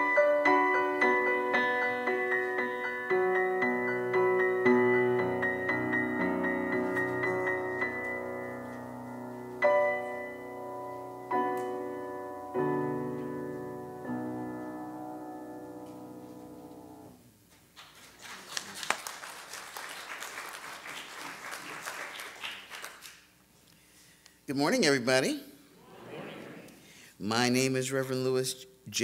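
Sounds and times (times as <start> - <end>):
piano chords: 0.0 - 17.2
audience applause: 17.9 - 23.2.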